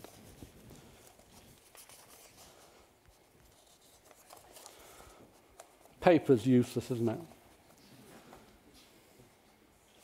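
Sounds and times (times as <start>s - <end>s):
paper rustling: 0.0s - 6.0s.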